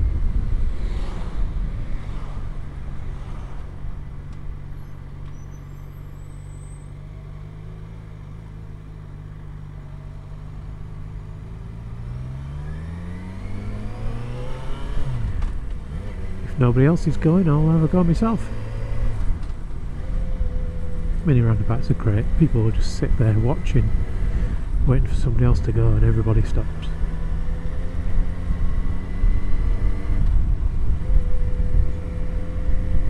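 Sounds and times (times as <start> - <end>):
wind noise: 0.0 - 2.6.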